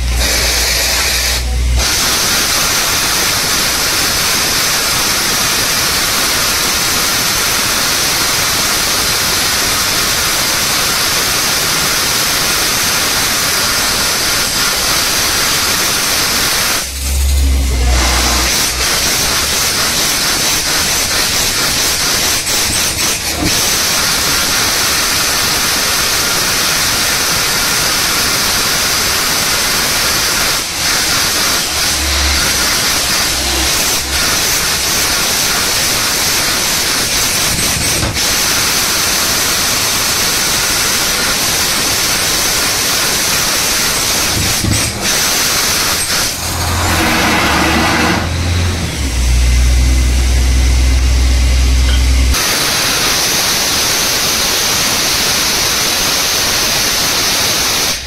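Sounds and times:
drilling rig engine running: 0.0s - 5.6s, 13.6s - 26.2s, 26.9s - 52.4s
air hissing through drill: 0.0s - 58.0s.

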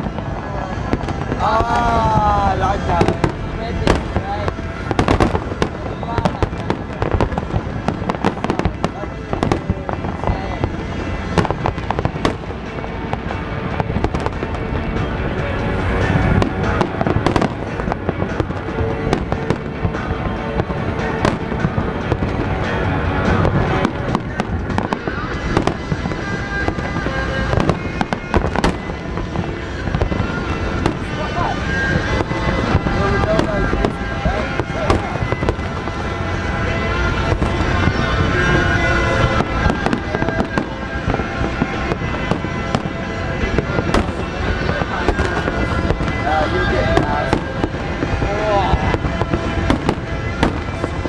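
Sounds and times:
firework bangs: 0.0s - 51.0s
low rumble: 0.0s - 51.0s
music: 0.0s - 51.0s.

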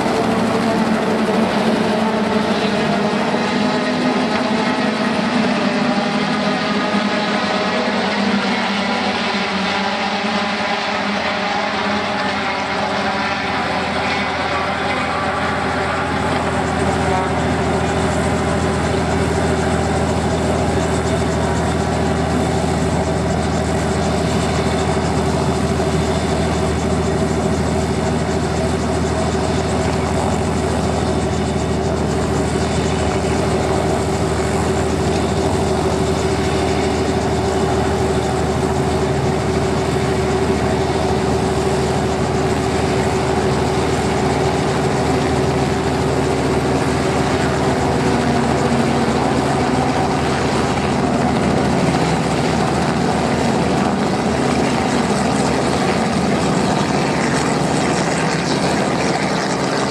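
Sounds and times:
helicopter idling rotor hum: 0.0s - 59.9s.

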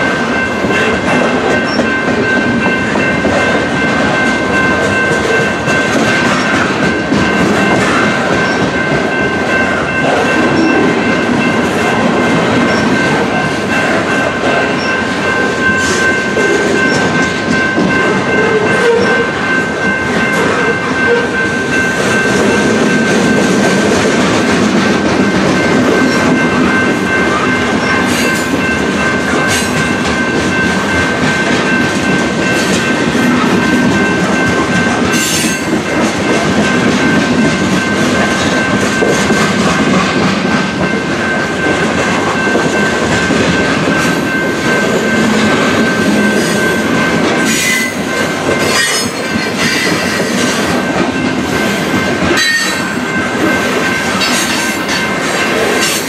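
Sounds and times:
freight train wheels rumbling: 0.0s - 56.0s
high-pitched ringing: 40.8s - 56.0s.

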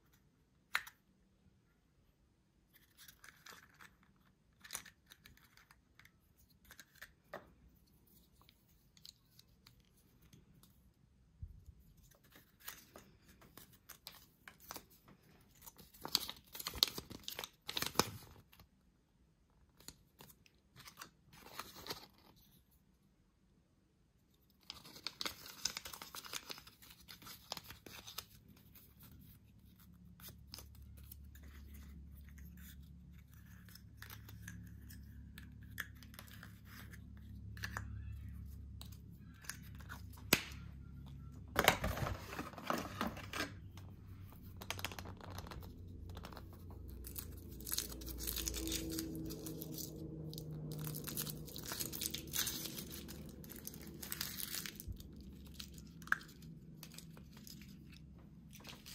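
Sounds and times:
foil wrappers crinkling: 44.6s - 58.9s.

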